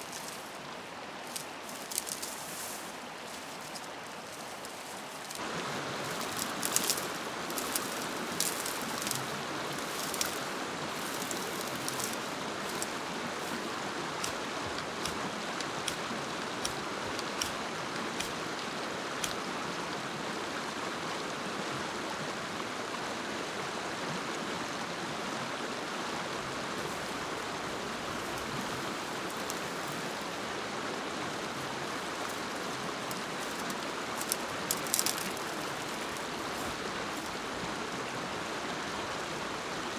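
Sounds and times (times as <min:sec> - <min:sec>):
rushing water: 0:00.0 - 0:39.9
sharp ticks and taps: 0:14.2 - 0:19.5, 0:33.1 - 0:35.5.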